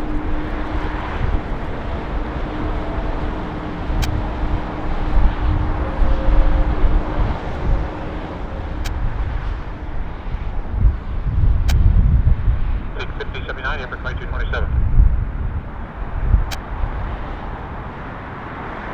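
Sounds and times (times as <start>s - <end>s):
jet engines rumbling: 0.0s - 18.9s
sharp clicks: 4.0s - 4.2s, 11.6s - 11.8s.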